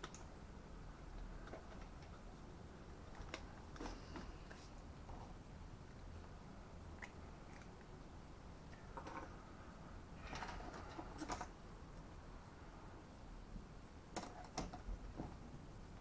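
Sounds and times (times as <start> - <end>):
small parts clicking and tapping: 0.0 - 0.3, 14.1 - 15.4.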